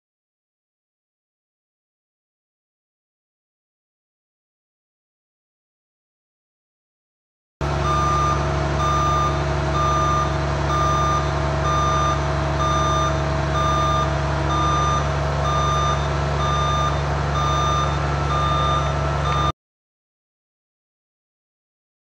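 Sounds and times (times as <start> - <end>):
diesel engine running: 7.6 - 19.5
backup alarm beeping: 7.8 - 19.5.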